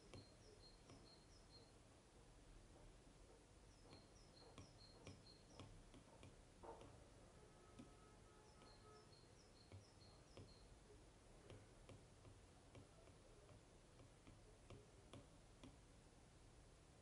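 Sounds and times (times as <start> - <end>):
stylus tip tapping on glass screen: 0.0 - 1.7, 3.7 - 7.1, 7.7 - 10.7, 11.4 - 15.8.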